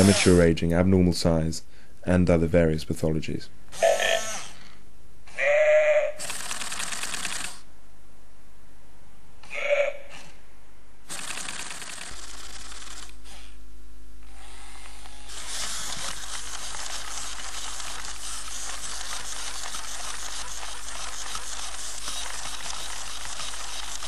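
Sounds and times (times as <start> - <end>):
robot motors whirring and clicking: 14.4 - 24.0.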